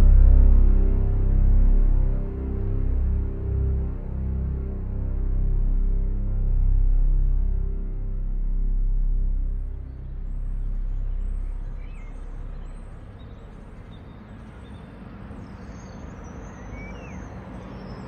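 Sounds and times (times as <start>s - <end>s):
film score music: 0.0s - 14.2s
outdoor background noise: 0.0s - 18.0s
bird chirps: 11.0s - 18.0s.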